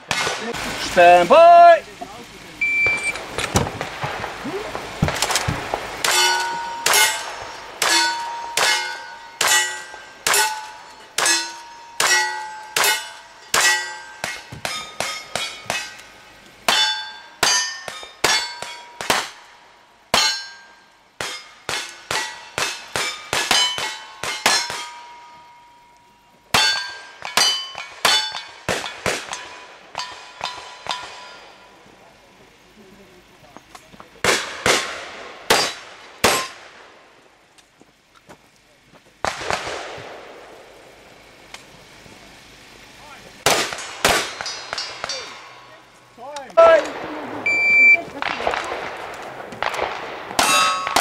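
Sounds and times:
gunshots: 0:00.0 - 0:01.2, 0:02.8 - 0:15.9, 0:17.6 - 0:19.4, 0:34.2 - 0:36.9, 0:39.2 - 0:40.6, 0:43.4 - 0:45.5, 0:46.7 - 0:51.0
steel plate clanging: 0:05.1 - 0:19.4, 0:20.1 - 0:31.7, 0:43.8 - 0:46.0, 0:50.4 - 0:51.0.

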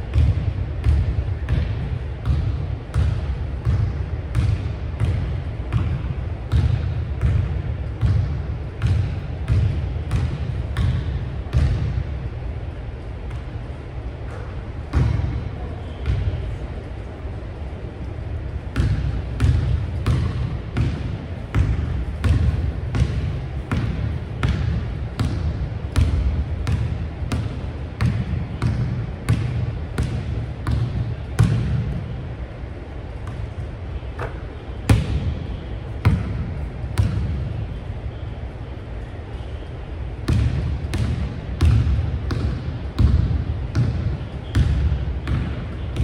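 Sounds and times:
basketball bouncing on hardwood floor: 0:18.8 - 0:31.8, 0:40.3 - 0:45.6.

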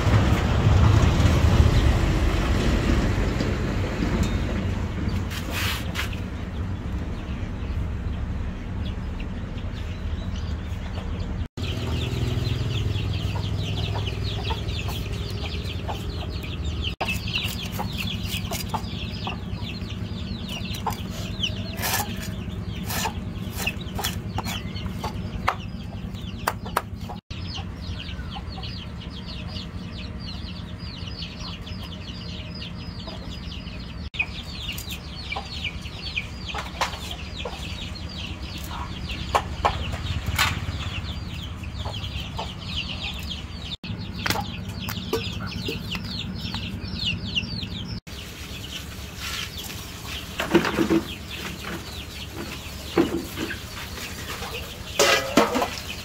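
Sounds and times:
chickens clucking and cheeping: 0:02.5 - 0:56.0
cleaver scraping fish scales: 0:05.3 - 0:06.2, 0:20.9 - 0:24.6.

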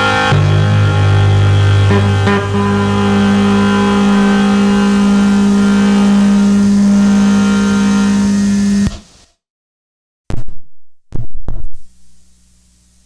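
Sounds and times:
drone music held low tone: 0:00.0 - 0:08.9.

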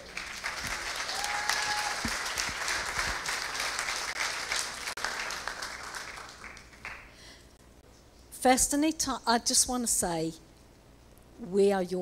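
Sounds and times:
congregation applauding: 0:00.0 - 0:07.2.

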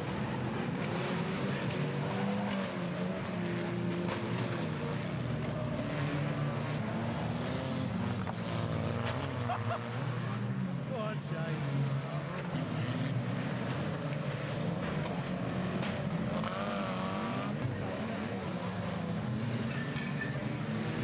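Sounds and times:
race car engines revving: 0:00.0 - 0:21.0.

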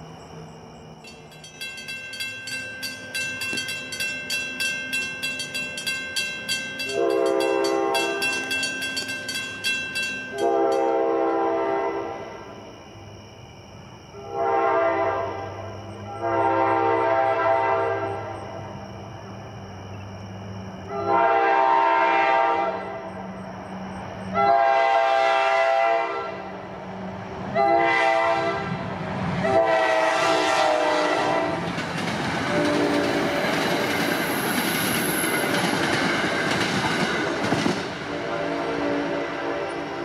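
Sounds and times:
crossing warning bell ringing: 0:01.0 - 0:11.5, 0:32.5 - 0:37.5
train horn: 0:06.9 - 0:08.5, 0:10.3 - 0:12.5, 0:14.2 - 0:18.4, 0:20.9 - 0:23.1, 0:24.3 - 0:26.5, 0:27.5 - 0:28.8, 0:29.4 - 0:31.6, 0:32.5 - 0:33.3, 0:38.1 - 0:40.0.

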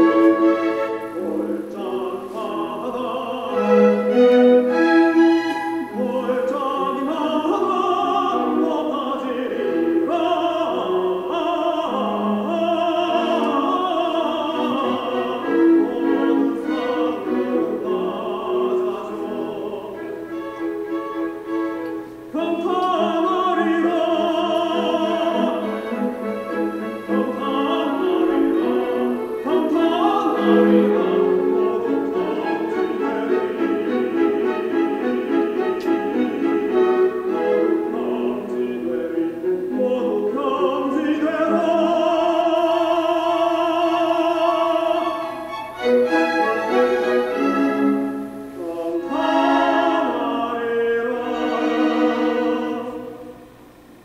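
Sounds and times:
instrumental accompaniment: 0:00.0 - 0:02.7, 0:03.5 - 0:06.2, 0:13.1 - 0:23.5, 0:24.4 - 0:39.8, 0:44.5 - 0:50.4
classical singing: 0:00.0 - 0:54.0.

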